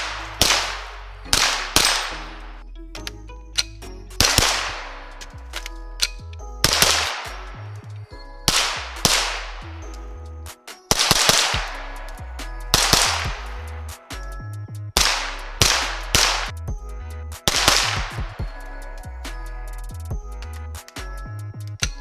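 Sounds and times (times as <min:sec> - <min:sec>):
echoing gunshots: 0:00.0 - 0:02.6, 0:04.2 - 0:05.1, 0:06.6 - 0:07.5, 0:08.5 - 0:09.7, 0:10.9 - 0:12.0, 0:12.7 - 0:13.6, 0:15.0 - 0:16.5, 0:17.5 - 0:18.4
music with heavy bass: 0:00.0 - 0:22.0.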